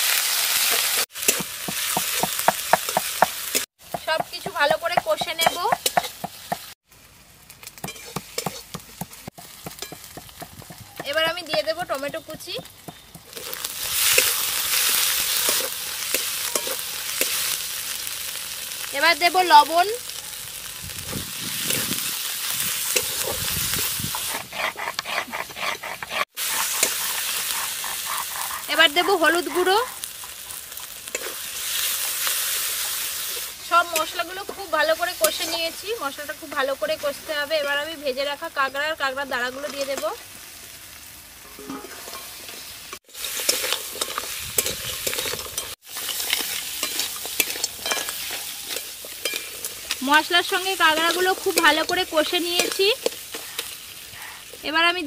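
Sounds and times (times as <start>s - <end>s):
food sizzling in oil: 0.0s - 55.0s
metal spatula scraping a pan: 7.8s - 8.8s, 13.4s - 17.6s, 22.8s - 35.8s, 41.4s - 53.8s
grinding stone scraping and knocking: 24.1s - 28.7s.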